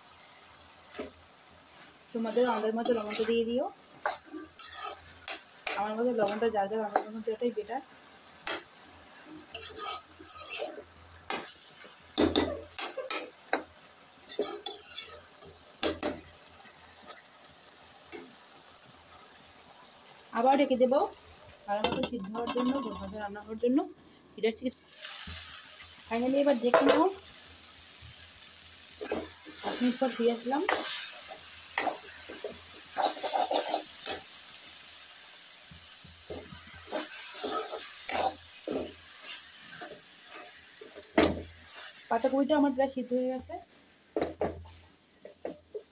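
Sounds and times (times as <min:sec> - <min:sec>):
frying hiss: 0:00.0 - 0:45.9
metal spatula scraping metal pan: 0:02.2 - 0:06.4, 0:09.5 - 0:10.8, 0:14.3 - 0:15.2, 0:21.9 - 0:23.2, 0:32.9 - 0:34.2
steel spoon scraping a pan: 0:02.2 - 0:07.0, 0:09.4 - 0:11.5, 0:12.7 - 0:13.3, 0:14.2 - 0:15.3, 0:21.9 - 0:23.2, 0:29.0 - 0:34.3, 0:36.3 - 0:40.6, 0:41.6 - 0:42.0.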